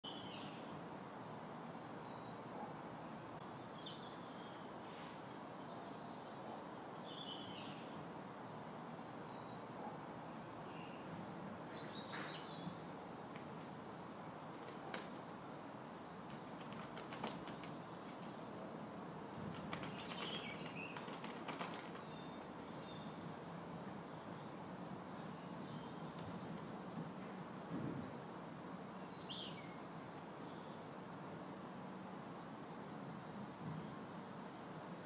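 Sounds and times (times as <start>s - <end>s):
outdoor background noise: 0.0s - 35.0s
bird chirps: 11.8s - 13.1s, 19.5s - 23.2s, 25.2s - 27.4s
faint clicks: 14.6s - 15.2s, 16.3s - 18.4s, 19.6s - 22.1s.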